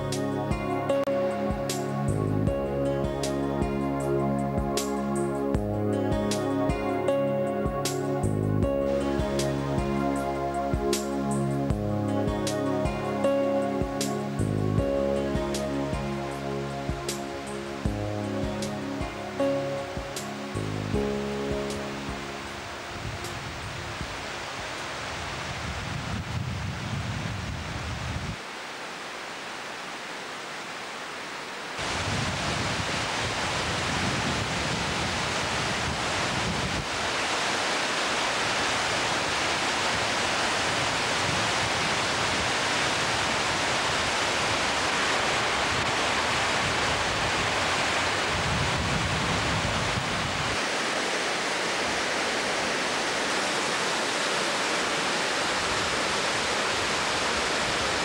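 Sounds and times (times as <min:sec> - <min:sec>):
river water rushing over falls: 0:00.0 - 0:58.0
wind buffeting microphone: 0:22.1 - 0:28.4, 0:31.8 - 0:37.1, 0:39.8 - 0:50.7.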